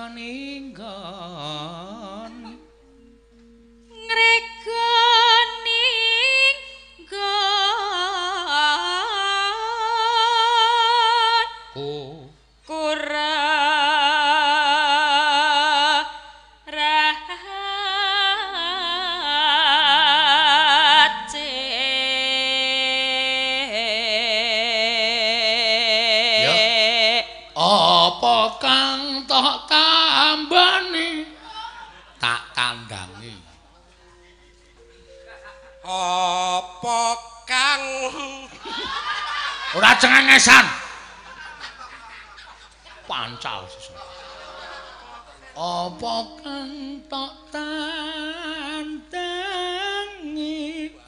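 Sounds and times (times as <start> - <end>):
sustained tones: 0.0 - 7.4, 43.1 - 50.4
person singing with vibrato: 0.0 - 41.7, 43.1 - 51.0.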